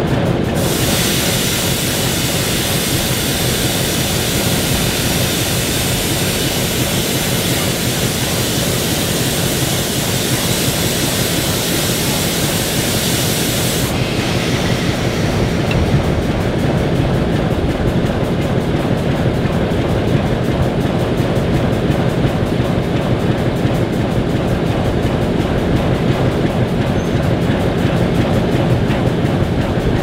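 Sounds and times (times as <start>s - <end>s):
diesel locomotive idling: 0.0s - 30.0s
loud hiss: 0.6s - 17.3s.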